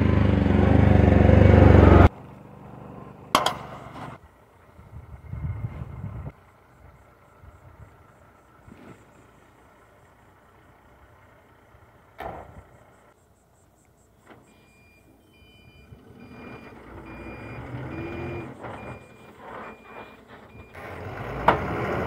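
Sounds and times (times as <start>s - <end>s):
diesel engine: 0.0s - 22.0s
truck door shutting: 12.2s - 12.6s
reversing alarm beeps: 13.4s - 20.8s.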